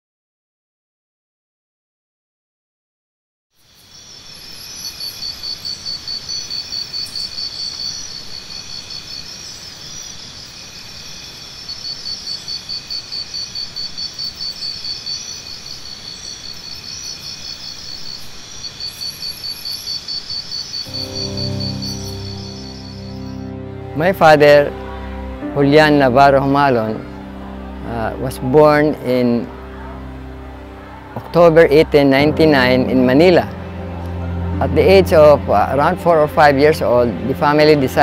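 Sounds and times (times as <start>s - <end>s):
insects trilling: 3.6s - 23.6s
steady background hiss: 3.6s - 38.0s.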